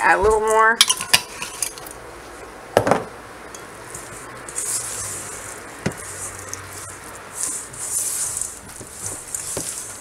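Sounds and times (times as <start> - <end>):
spatula scraping metal bowl: 3.9 - 10.0.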